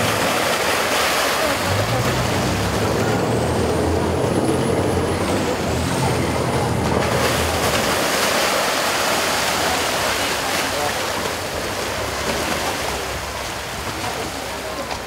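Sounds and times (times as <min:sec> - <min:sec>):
motorboat engine hum: 0:00.0 - 0:15.0
water rushing along hull: 0:00.0 - 0:15.0.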